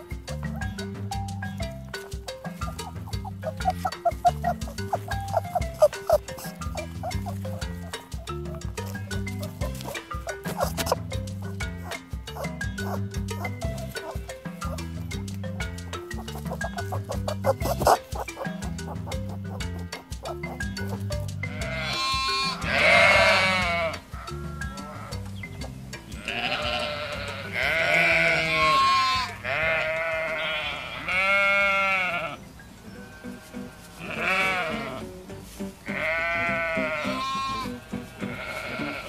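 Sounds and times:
background music: 0.0s - 39.0s
sheep bleating: 2.6s - 8.0s, 8.9s - 11.0s, 16.2s - 20.7s, 21.4s - 25.3s, 26.1s - 32.4s, 33.0s - 35.2s, 35.8s - 39.0s.

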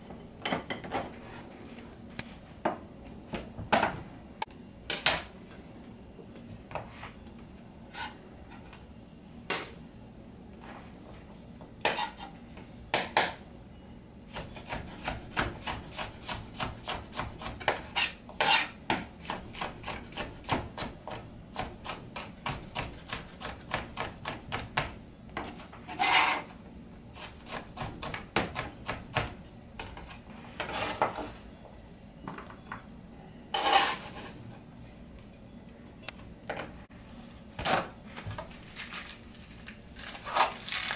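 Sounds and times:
knife scraping: 7.9s - 8.8s, 11.8s - 12.4s, 17.9s - 18.8s, 25.9s - 26.5s, 30.6s - 31.3s, 33.5s - 34.4s, 40.0s - 40.9s.

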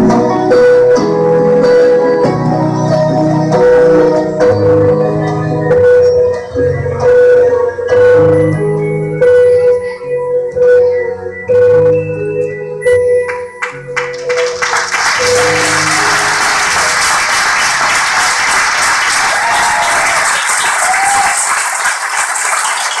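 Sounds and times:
held keyboard chords: 0.0s - 21.1s
audience applause: 14.0s - 23.0s.

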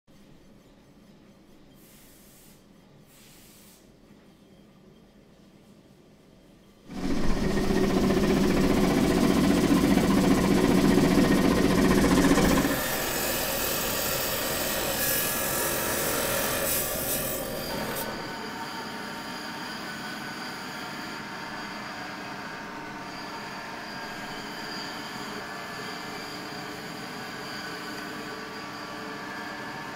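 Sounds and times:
stone saw cutting stone: 7.0s - 22.4s.

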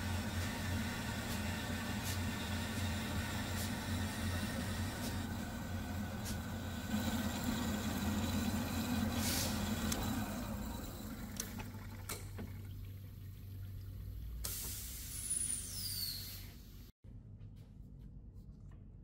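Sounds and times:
metal-cutting bandsaw running: 0.0s - 11.6s
coolant flowing: 6.0s - 14.8s.

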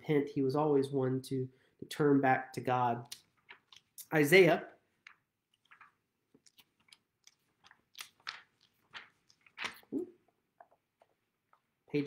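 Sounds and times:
thin pages flipping and rustling: 5.0s - 9.9s.

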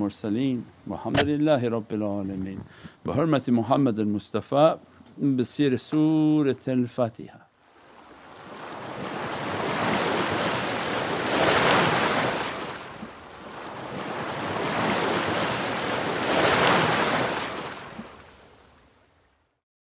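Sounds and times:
waves washing on beach: 7.6s - 19.3s.

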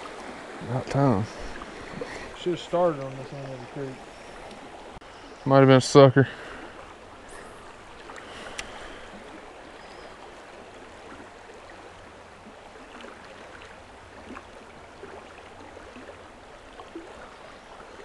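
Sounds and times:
creek water rushing: 0.0s - 18.0s
faint clicks: 2.9s - 3.6s, 4.4s - 4.6s, 8.0s - 8.8s.

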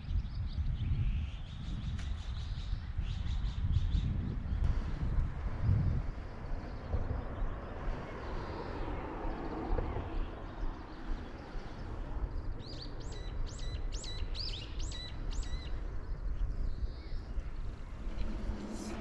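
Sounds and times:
songbird calling: 6.4s - 19.0s.

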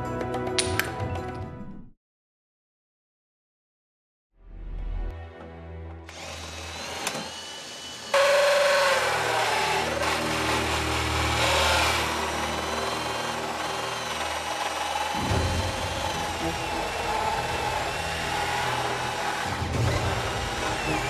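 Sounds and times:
hole saw cutting steel whine: 6.1s - 21.0s
power drill motor: 6.1s - 21.0s.

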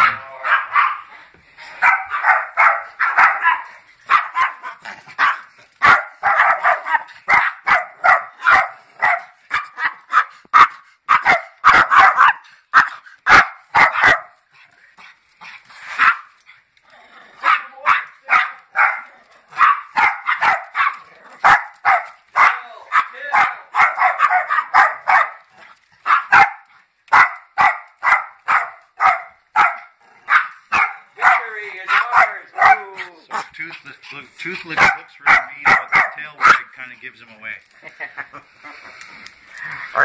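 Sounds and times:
small dogs yapping: 0.0s - 1.1s, 1.8s - 14.3s, 17.3s - 33.6s.

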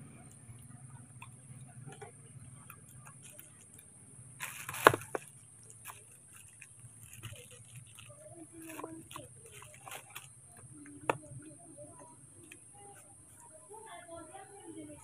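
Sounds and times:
rustling clatter: 1.8s - 11.9s.

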